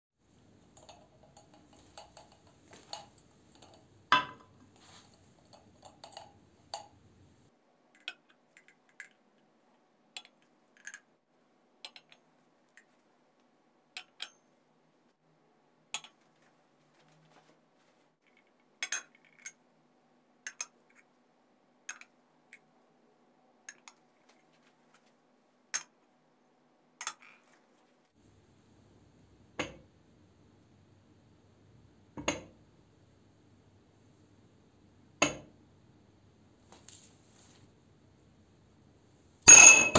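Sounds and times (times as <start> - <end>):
ceramic cups clinking on stone: 0.7 - 7.0, 18.8 - 19.6, 39.5 - 39.9.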